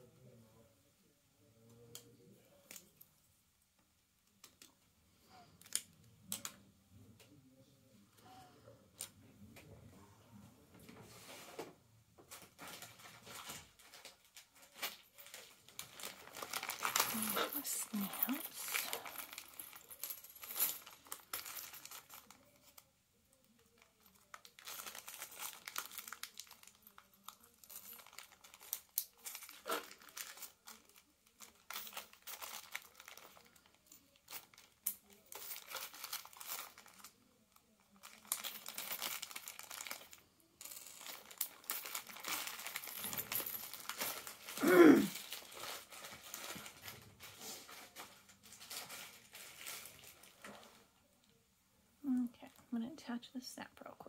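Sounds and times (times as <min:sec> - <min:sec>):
plastic bags crinkling: 0:12.3 - 0:22.8, 0:23.4 - 0:50.8.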